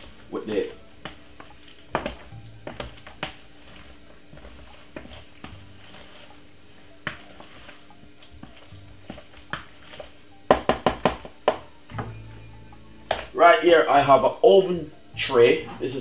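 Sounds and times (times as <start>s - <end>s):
wooden spoon scraping in a bowl: 0.0s - 10.3s
spoon knocking on a bowl: 10.5s - 12.2s.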